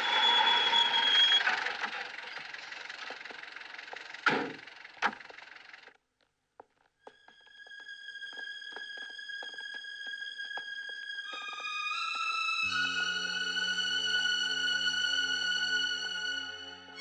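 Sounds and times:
high steady squeal: 0.0s - 2.9s
old van driving: 0.0s - 6.0s.

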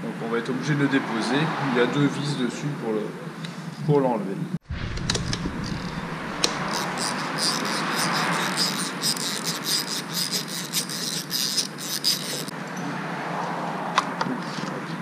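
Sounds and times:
screwdriver clicking: 6.4s - 12.5s.

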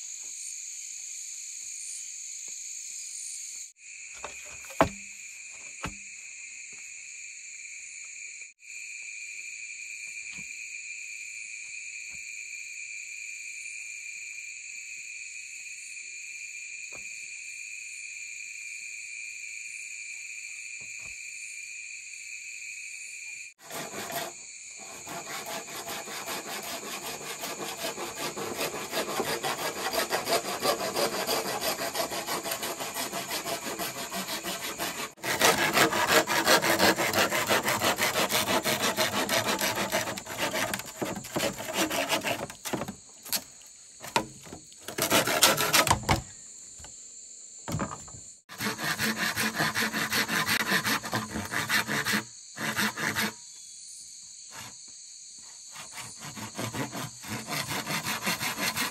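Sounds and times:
hand saw cutting wood: 4.2s - 5.0s, 23.6s - 46.3s, 47.7s - 53.4s, 55.7s - 58.9s
insects buzzing: 16.5s - 58.9s.

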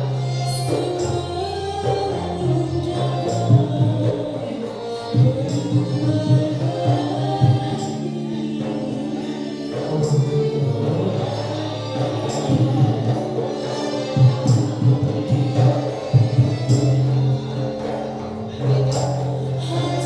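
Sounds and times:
frame drum: 0.0s - 20.0s
violin: 0.0s - 20.0s
woman singing: 0.0s - 20.0s.

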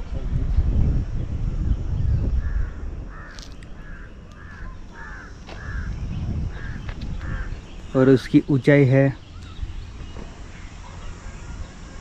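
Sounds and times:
crow cawing: 2.4s - 7.7s.

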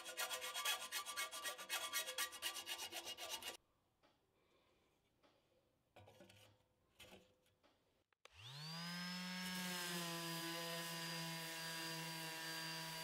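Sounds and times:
orbital sander running: 8.3s - 13.0s.

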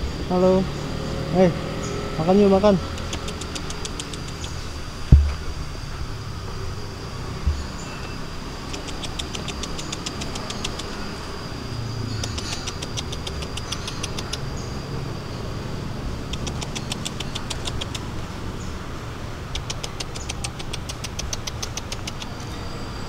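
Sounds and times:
low rumble: 0.0s - 8.5s
rapid high clicking trill: 2.4s - 5.0s, 7.6s - 11.1s, 12.0s - 14.8s
faint high steady tone: 4.3s - 16.2s, 22.2s - 23.0s.

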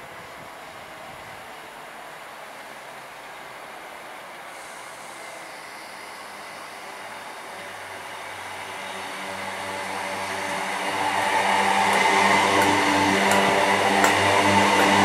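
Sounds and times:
electric train humming and rumbling: 0.0s - 15.0s.

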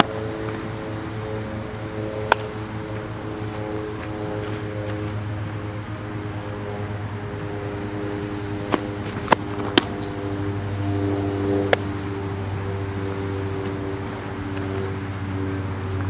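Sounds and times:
steady low hum: 0.0s - 16.0s
ball smacking into leather mitt: 2.2s - 2.6s, 8.7s - 10.1s, 11.6s - 11.9s.

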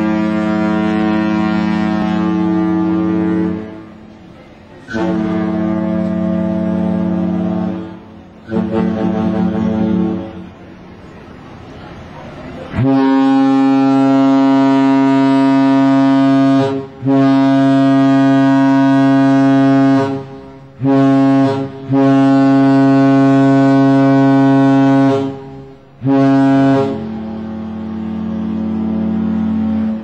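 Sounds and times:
ship horn blasts: 0.0s - 10.7s, 12.6s - 30.0s.

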